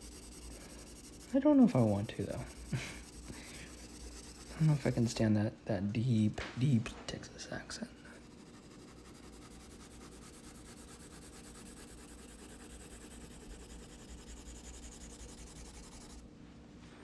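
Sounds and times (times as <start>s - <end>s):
pencil shading on paper: 0.0s - 5.2s, 8.2s - 16.2s.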